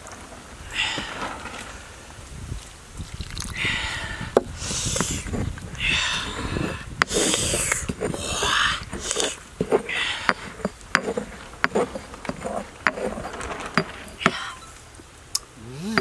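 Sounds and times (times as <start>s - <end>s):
pestle mashing wet sauce: 6.3s - 14.4s.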